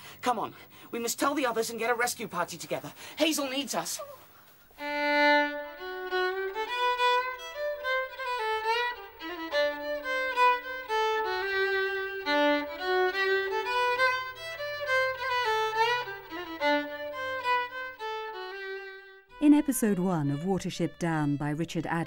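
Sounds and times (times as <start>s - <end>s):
fiddle playing quick tune: 4.8s - 19.6s.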